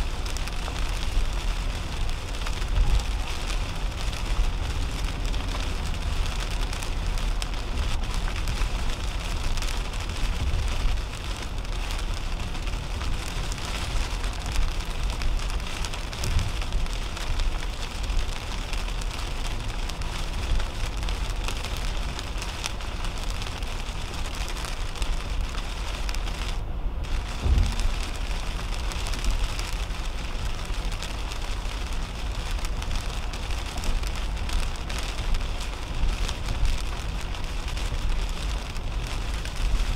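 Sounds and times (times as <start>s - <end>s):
rain hissing on car windshield: 0.0s - 39.9s
tyres rumbling on wet pavement: 0.0s - 39.9s.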